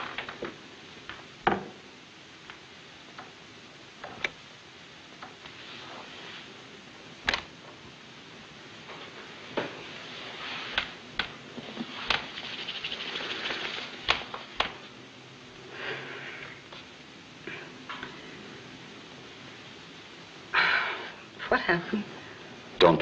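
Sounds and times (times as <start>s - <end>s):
soft rustling: 5.3s - 7.9s, 8.7s - 15.0s.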